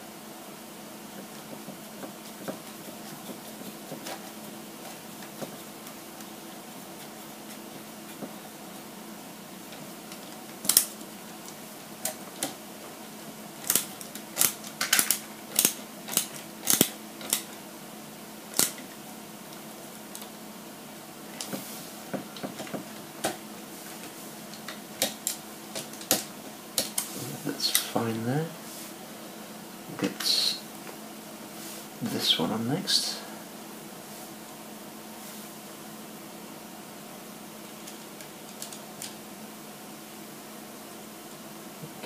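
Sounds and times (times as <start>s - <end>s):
faint steady hum: 0.0s - 42.0s
small tools and parts clicking: 13.6s - 17.5s, 18.5s - 18.8s.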